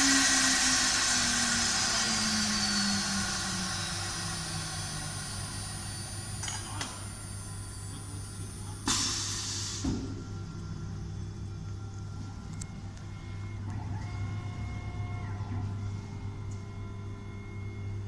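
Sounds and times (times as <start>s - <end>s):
cnc router spindle winding down: 0.0s - 6.4s.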